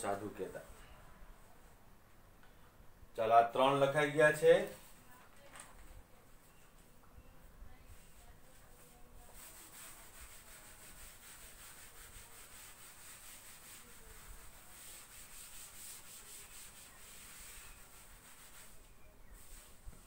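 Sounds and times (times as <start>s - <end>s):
eraser rubbing on blackboard: 8.0s - 20.0s.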